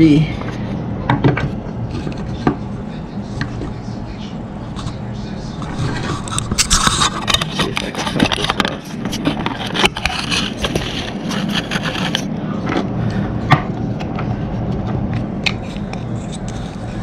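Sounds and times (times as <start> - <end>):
plastic parts scraping and clicking: 5.6 - 12.9.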